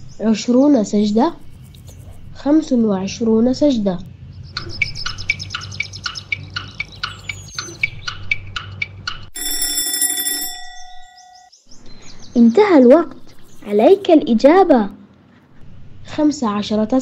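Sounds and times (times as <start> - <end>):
cartoon alarm clock ringing: 9.3 - 11.5.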